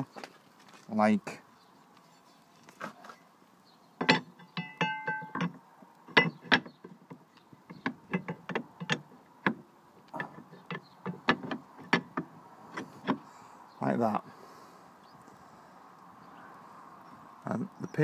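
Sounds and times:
metallic ring: 4.0s - 5.6s
metal clanks and knocks: 4.0s - 13.2s.

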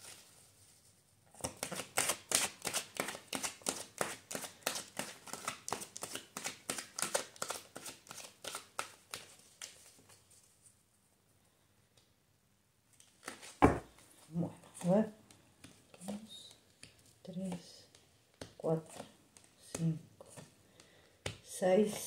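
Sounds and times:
cards being shuffled: 1.4s - 10.6s, 13.0s - 14.0s, 15.6s - 22.0s.

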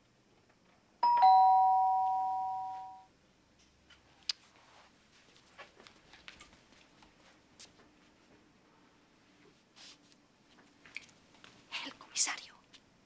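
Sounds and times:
two-tone doorbell chime: 1.0s - 3.1s.

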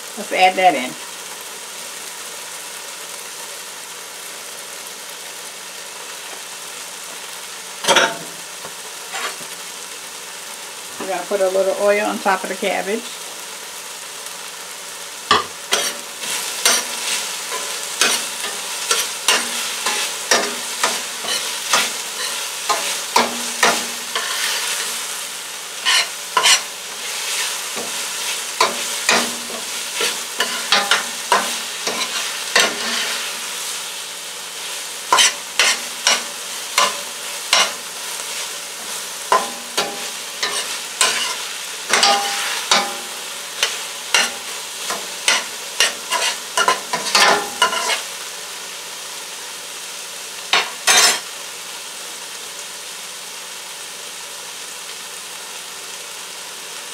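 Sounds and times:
vegetables sizzling in oil: 0.0s - 56.9s
utensil scraping against pan: 9.1s - 9.5s, 15.3s - 25.1s, 25.8s - 33.7s, 35.1s - 48.1s, 50.5s - 51.2s.

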